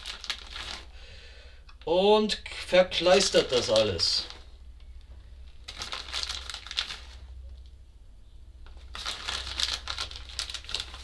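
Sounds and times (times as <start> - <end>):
plastic packet crinkling: 0.0 - 1.0, 2.9 - 4.6, 5.4 - 7.7, 8.7 - 11.0.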